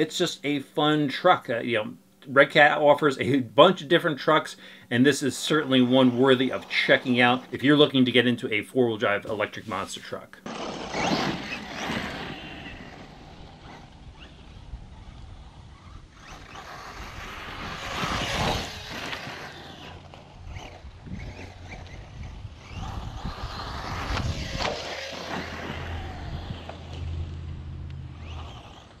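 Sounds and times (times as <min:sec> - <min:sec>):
steady low hum: 0:00.0 - 0:29.0
electric rc truck driving: 0:03.2 - 0:08.4, 0:10.4 - 0:29.0
wind on microphone: 0:20.4 - 0:24.8, 0:25.6 - 0:26.8.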